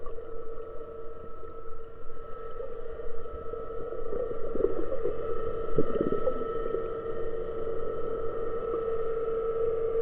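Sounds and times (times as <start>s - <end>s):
underwater boat engine hum: 0.0s - 10.0s.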